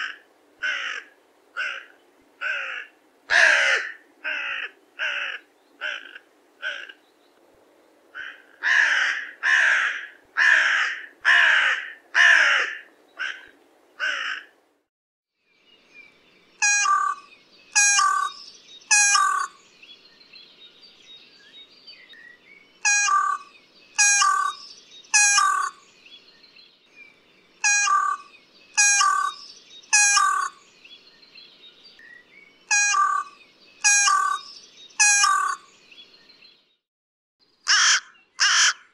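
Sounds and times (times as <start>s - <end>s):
crow cawing: 0.0s - 7.0s, 8.2s - 14.5s, 25.2s - 25.8s, 27.7s - 29.4s, 30.0s - 30.6s, 32.8s - 34.4s, 35.1s - 35.7s, 37.7s - 38.9s
faint bird chirping: 15.4s - 36.8s.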